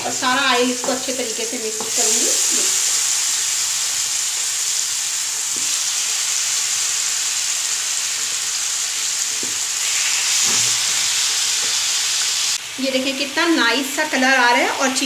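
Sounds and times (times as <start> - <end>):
chicken sizzling in a pan: 0.0 - 15.0.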